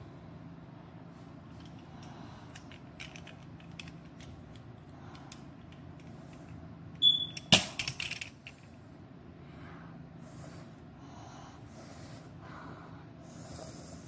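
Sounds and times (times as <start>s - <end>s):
low steady hum: 0.0s - 14.0s
rattle of clicks and knocks: 1.5s - 6.6s, 7.2s - 8.8s
short high beep: 7.0s - 7.4s.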